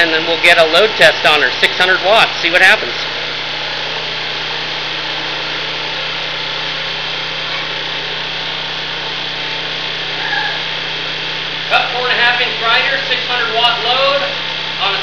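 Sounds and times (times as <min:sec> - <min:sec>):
portable generator engine running: 0:00.0 - 0:15.0.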